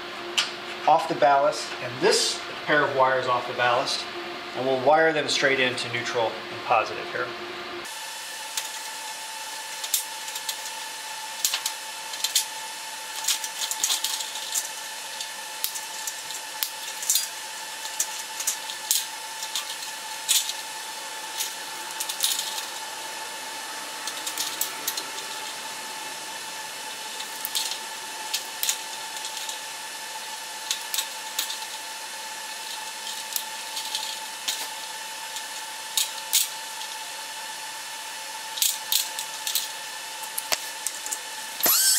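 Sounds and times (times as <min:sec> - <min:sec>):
steady high hum: 0:00.0 - 0:41.9
wire cutters snipping: 0:24.0 - 0:25.6, 0:27.1 - 0:29.6, 0:40.3 - 0:41.9.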